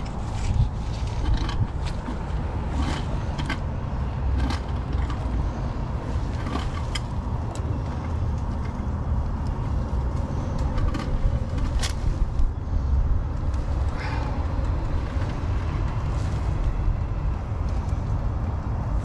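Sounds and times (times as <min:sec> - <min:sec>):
steady low rumble: 0:00.0 - 0:19.0.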